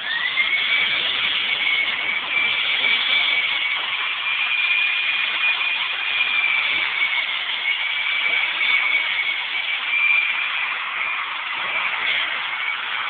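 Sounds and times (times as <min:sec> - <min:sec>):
angle grinder whining: 0:00.0 - 0:13.0.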